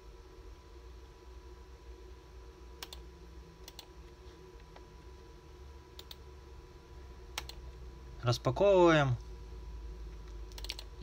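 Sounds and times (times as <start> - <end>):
faint steady low hum: 0.0 - 11.0.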